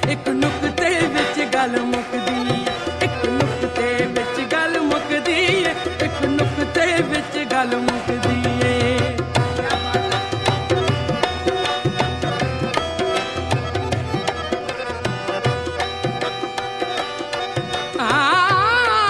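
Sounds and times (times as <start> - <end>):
held accompanying tones: 0.0 - 19.0
tabla beat: 0.0 - 19.0.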